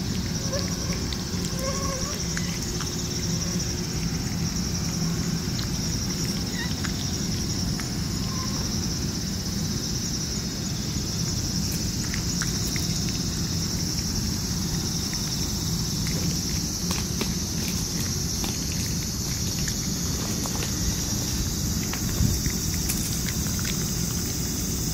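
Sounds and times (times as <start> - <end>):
cicadas droning: 0.0 - 24.9
cat chewing from metal bowl: 11.4 - 24.9.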